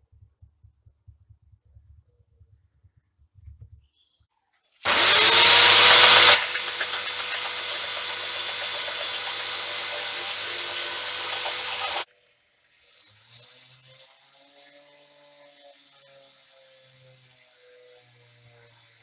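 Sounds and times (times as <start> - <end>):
belt sander motor whine: 4.9 - 12.0.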